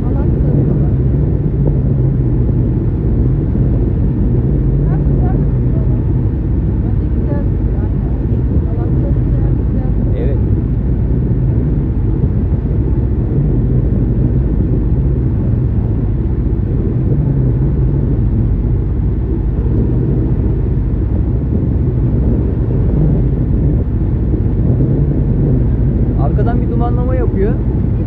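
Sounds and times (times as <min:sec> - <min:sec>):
boat engine low rumble: 0:00.0 - 0:28.0.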